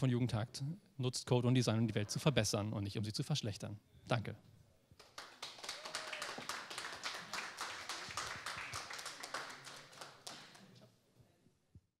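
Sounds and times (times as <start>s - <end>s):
audience applauding: 5.0s - 10.7s.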